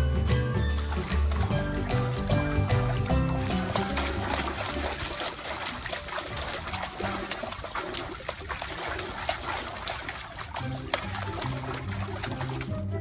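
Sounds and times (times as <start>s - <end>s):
puppy splashing water: 0.0s - 13.0s.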